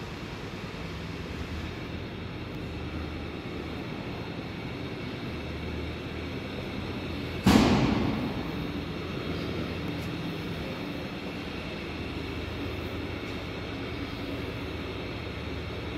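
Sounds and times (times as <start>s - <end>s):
low mechanical drone: 0.0s - 15.9s.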